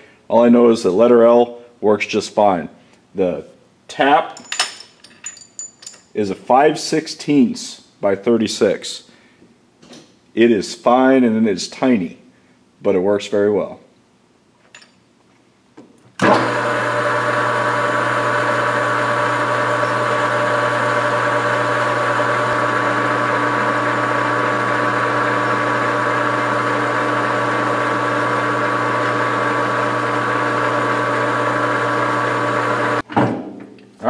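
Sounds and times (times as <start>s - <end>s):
metal lathe humming: 16.2s - 33.0s.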